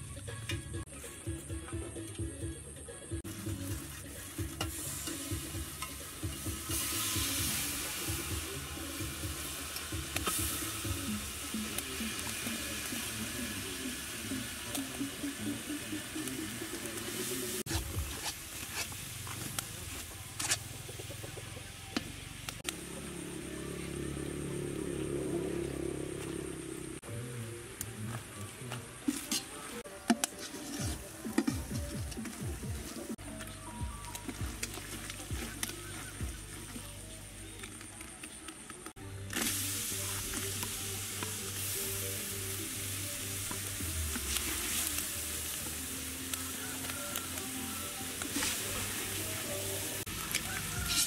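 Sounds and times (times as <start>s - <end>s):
garlic sizzling in hot oil: 3.2s - 21.3s, 39.3s - 51.0s
metal ladle stirring in pot: 29.1s - 31.7s.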